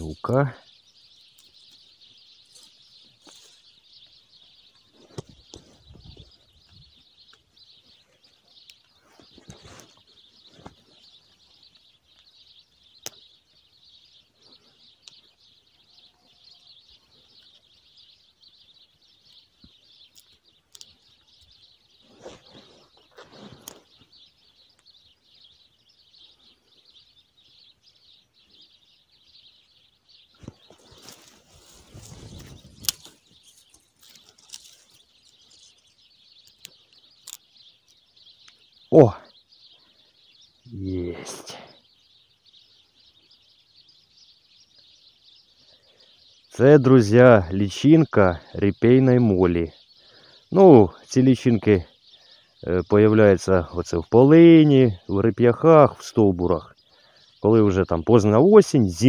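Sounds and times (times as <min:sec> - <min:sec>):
dry stems snapping and crackling: 0:20.1 - 0:20.9, 0:30.4 - 0:35.8, 0:36.4 - 0:37.5.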